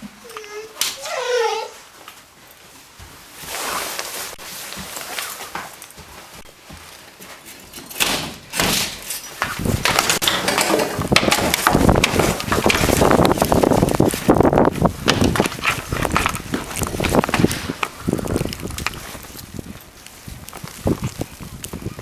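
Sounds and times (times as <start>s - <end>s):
shuffling and rustling: 0.0s - 22.0s
footsteps crunching through snow: 1.8s - 7.8s, 11.5s - 22.0s
door opening: 7.8s - 13.1s
wind buffeting microphone: 9.6s - 10.2s, 10.9s - 22.0s.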